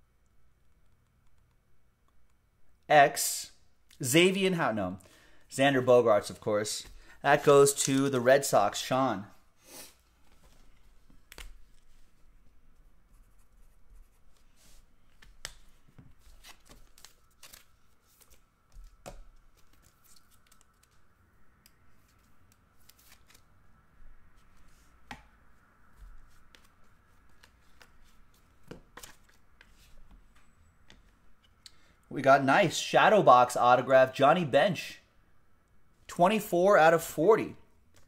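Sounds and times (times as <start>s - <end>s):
cards clicking and tapping: 18.2s - 21.0s, 28.6s - 29.8s.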